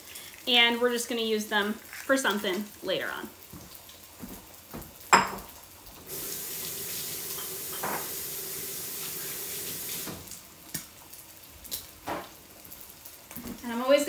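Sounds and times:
kitchen tap running: 0:00.0 - 0:10.8.

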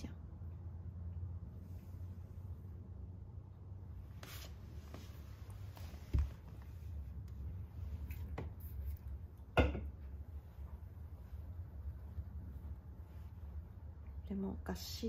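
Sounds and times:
low steady hum: 0:00.0 - 0:15.0
soft rustles: 0:03.9 - 0:09.4, 0:10.0 - 0:14.3.

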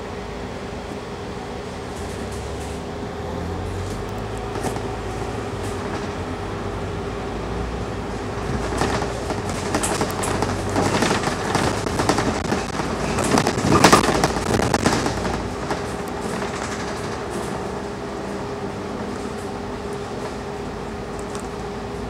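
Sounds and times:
bus engine drone: 0:00.0 - 0:22.0
body panels rattling: 0:08.4 - 0:17.6.

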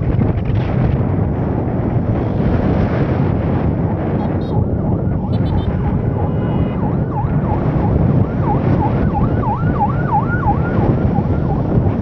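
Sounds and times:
wind and road rumble: 0:00.0 - 0:12.0
warbling siren-like tone: 0:04.2 - 0:11.8.

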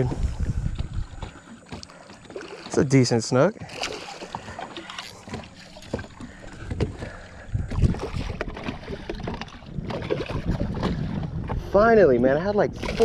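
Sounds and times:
wind buffeting microphone: 0:00.0 - 0:01.8, 0:05.3 - 0:13.0
fish splashing in water: 0:00.8 - 0:02.9, 0:03.6 - 0:11.0.

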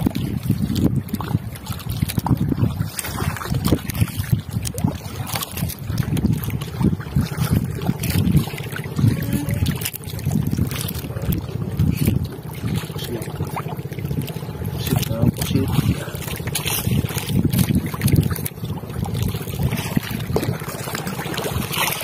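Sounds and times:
water lapping against boat hull: 0:00.0 - 0:22.0
wind buffeting microphone: 0:00.0 - 0:22.0.

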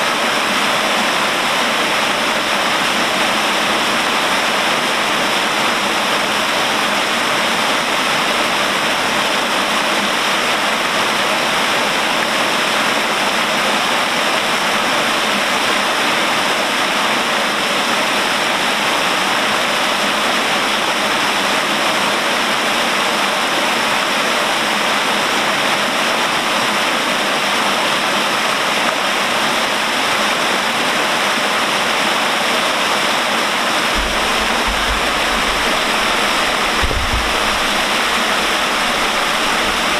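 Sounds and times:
water pouring and splashing: 0:28.2 - 0:39.9.

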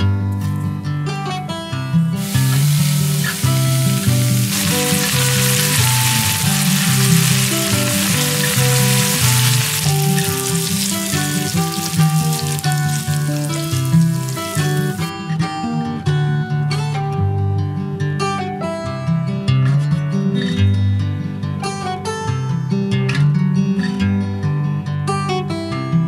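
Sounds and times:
guitar music: 0:02.1 - 0:15.6
bacon sizzling in a frying pan: 0:02.2 - 0:15.1.

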